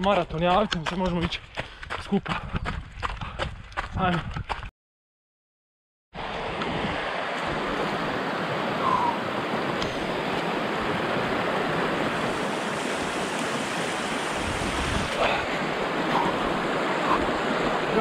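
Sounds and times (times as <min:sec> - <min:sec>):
muddy stream rushing: 0:06.2 - 0:18.0.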